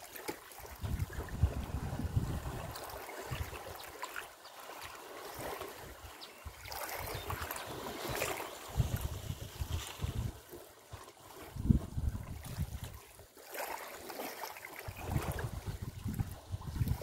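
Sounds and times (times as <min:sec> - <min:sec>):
water splashes: 0:00.0 - 0:17.0
wind gusts on microphone: 0:00.7 - 0:03.9, 0:05.3 - 0:10.5, 0:11.4 - 0:13.0, 0:14.9 - 0:17.0.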